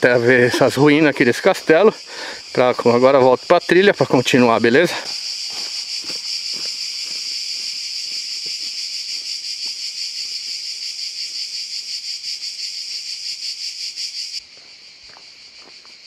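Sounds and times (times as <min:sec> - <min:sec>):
cicadas buzzing: 0:00.0 - 0:16.0
footsteps on gravel: 0:04.8 - 0:10.6, 0:14.5 - 0:16.0.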